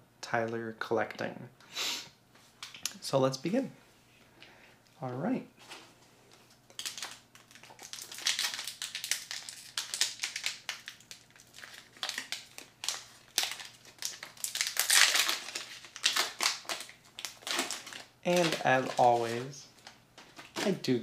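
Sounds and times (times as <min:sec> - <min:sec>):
foil wrapper crinkling: 0:06.3 - 0:21.0.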